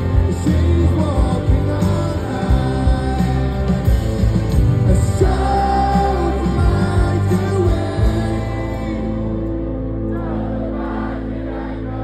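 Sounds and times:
person singing: 0:00.0 - 0:04.0, 0:04.7 - 0:09.4
electric guitar: 0:00.0 - 0:11.1
live rock band playing: 0:00.0 - 0:11.1.

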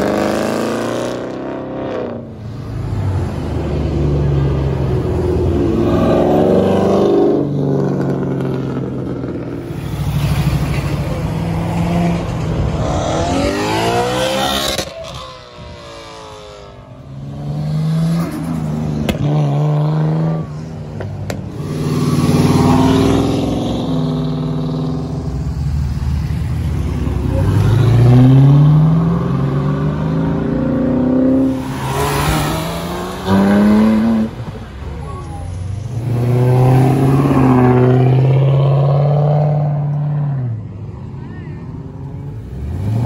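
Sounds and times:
cars accelerating past: 0:00.0 - 0:40.7
engine rising rev: 0:11.5 - 0:15.3.

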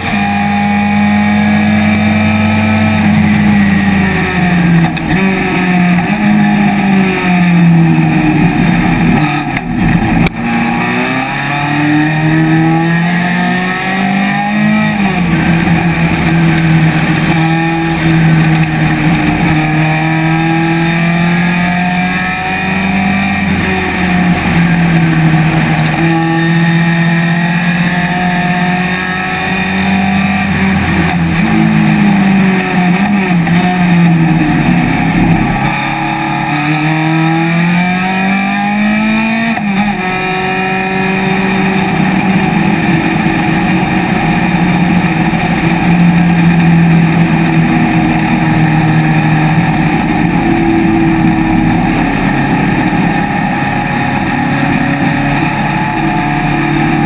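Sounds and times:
race car engine at high revs: 0:00.0 - 0:57.0.

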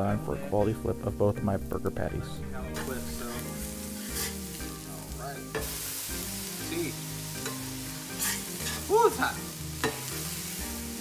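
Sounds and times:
spatula scraping griddle: 0:02.8 - 0:04.6, 0:07.4 - 0:09.0
patties sizzling on griddle: 0:02.8 - 0:11.0.

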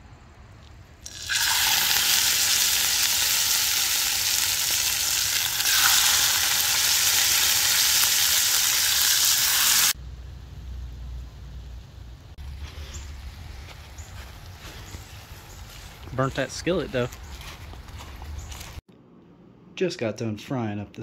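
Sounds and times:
meat sizzling in a skillet: 0:01.1 - 0:10.0.

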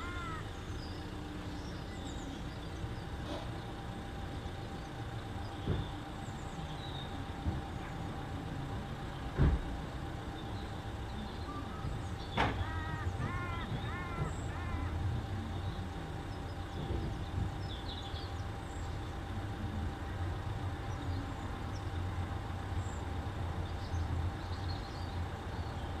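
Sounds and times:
bird calls: 0:00.0 - 0:03.8, 0:10.4 - 0:19.1.

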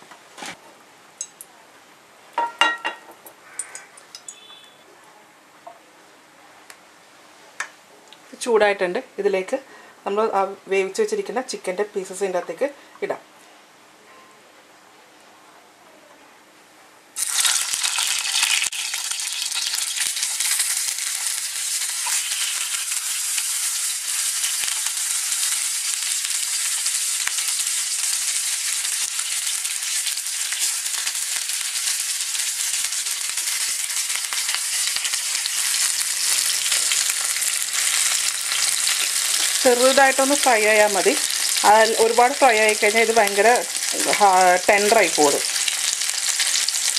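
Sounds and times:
chicken sizzling in frying pan: 0:17.2 - 0:46.9.

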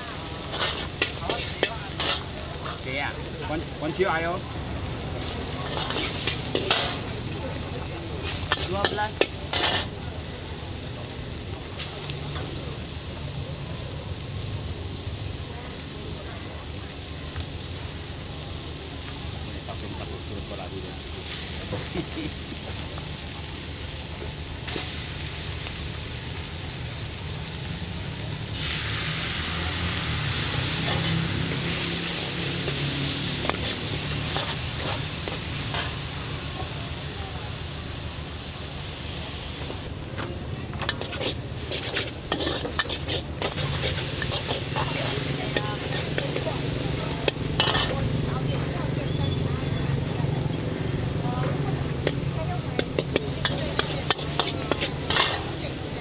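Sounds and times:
noodles sizzling in a wok: 0:00.0 - 0:56.0
metal ladle scraping a wok: 0:00.1 - 0:02.9, 0:05.2 - 0:07.1, 0:08.2 - 0:10.0, 0:29.4 - 0:36.1, 0:40.7 - 0:48.6, 0:52.0 - 0:56.0.

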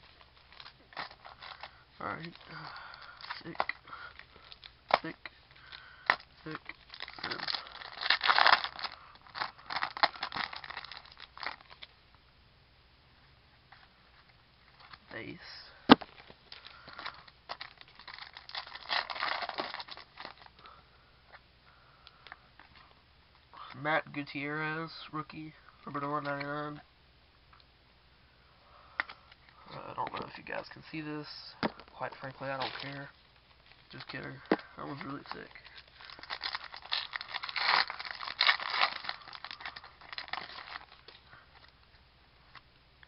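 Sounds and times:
crinkling rustle: 0:00.0 - 0:12.0, 0:13.7 - 0:20.8, 0:31.6 - 0:42.7.

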